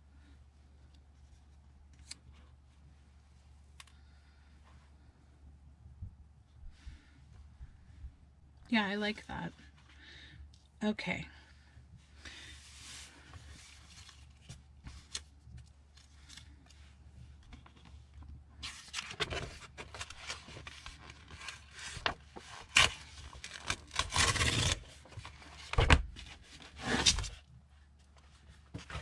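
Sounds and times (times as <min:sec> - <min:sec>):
paper rustling: 0:12.3 - 0:18.0, 0:18.6 - 0:27.4.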